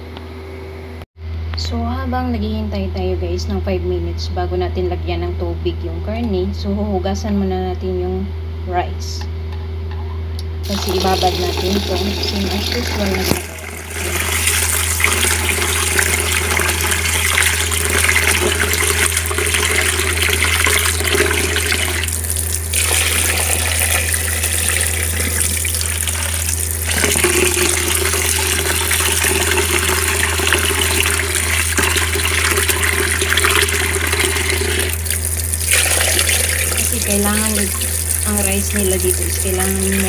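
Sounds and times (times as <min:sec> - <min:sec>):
rice rinsed by hand: 0:10.6 - 0:40.0
water splashing into sink: 0:10.6 - 0:40.0
tap running into basin: 0:10.7 - 0:40.0.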